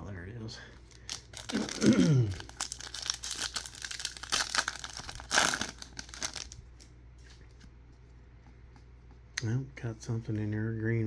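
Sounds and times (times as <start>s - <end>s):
foil wrapper crinkling and tearing: 0.9s - 6.9s.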